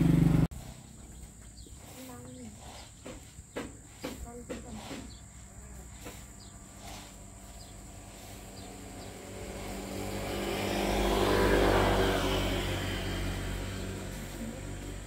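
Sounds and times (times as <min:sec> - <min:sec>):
vehicle passing by: 0:00.0 - 0:01.2, 0:05.8 - 0:15.0.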